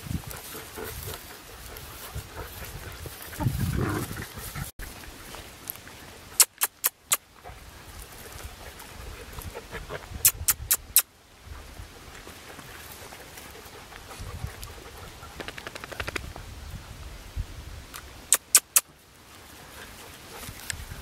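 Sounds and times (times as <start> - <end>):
sharp clicks: 6.4 - 7.2, 18.3 - 18.9
puppy sounds: 18.3 - 18.9.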